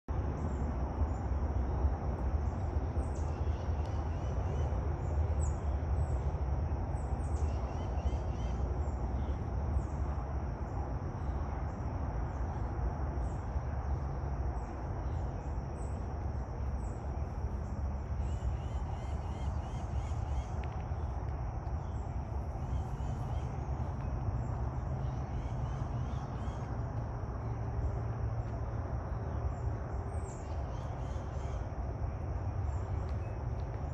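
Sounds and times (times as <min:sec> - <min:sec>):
steady low rumble: 0:00.1 - 0:33.9
birds chirping: 0:15.0 - 0:27.8.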